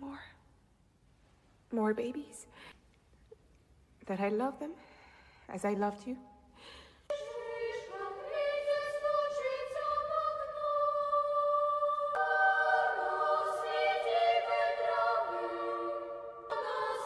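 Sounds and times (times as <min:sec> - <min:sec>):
children's choir singing: 0:07.1 - 0:17.0.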